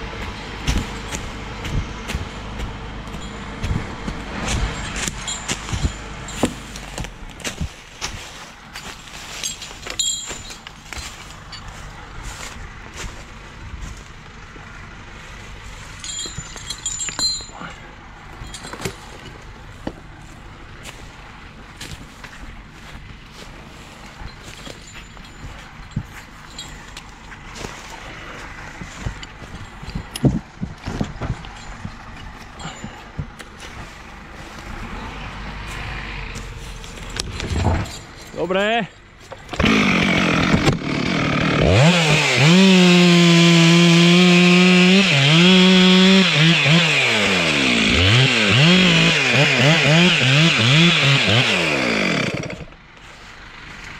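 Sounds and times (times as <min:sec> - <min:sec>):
footsteps through dry leaves: 0:00.0 - 0:14.2, 0:18.9 - 0:29.9, 0:33.5 - 0:37.2, 0:52.9 - 0:53.9
low engine running: 0:00.0 - 0:53.9
metallic clinks of winch rigging: 0:04.4 - 0:07.0, 0:09.3 - 0:12.0, 0:15.8 - 0:19.8, 0:24.0 - 0:28.1, 0:28.8 - 0:30.6, 0:31.3 - 0:34.9, 0:36.6 - 0:40.0.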